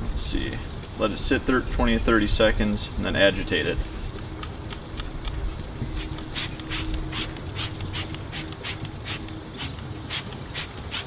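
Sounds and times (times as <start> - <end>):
spray bottle hissing: 6.0 - 11.0.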